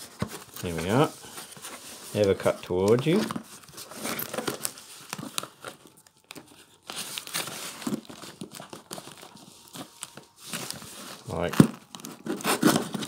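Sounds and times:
knife slitting packing tape: 0:12.0 - 0:13.0.

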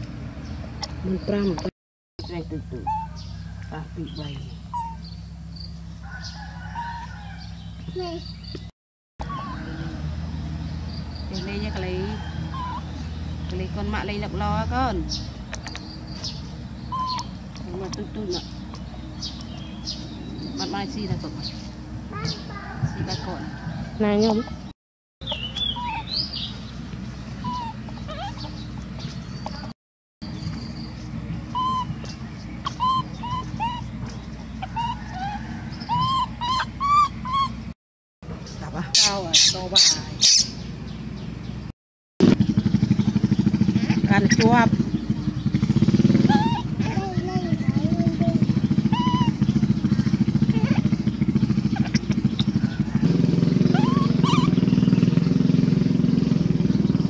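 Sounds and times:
short chirping calls: 0:00.5 - 0:06.4, 0:15.1 - 0:22.6, 0:25.2 - 0:37.8, 0:38.4 - 0:41.7, 0:48.3 - 0:55.8
short high rising calls: 0:31.5 - 0:37.6, 0:48.6 - 0:49.6, 0:53.5 - 0:55.0
small engine running: 0:42.2 - 0:57.0.

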